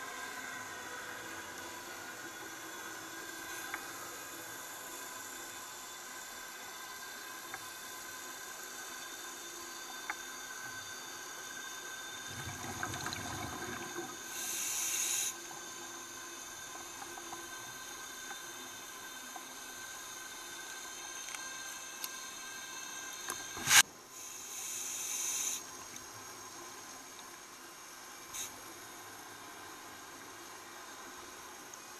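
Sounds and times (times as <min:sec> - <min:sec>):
steady camera hiss: 0:14.2 - 0:31.9.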